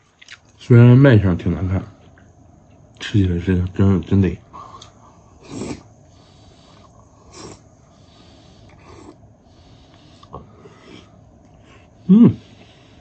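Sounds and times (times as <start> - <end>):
person slurping: 5.4 - 5.9, 7.3 - 7.6.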